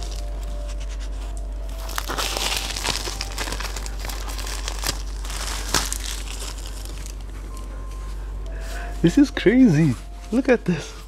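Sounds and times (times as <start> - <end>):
bubble wrap crackling: 0.0 - 11.0.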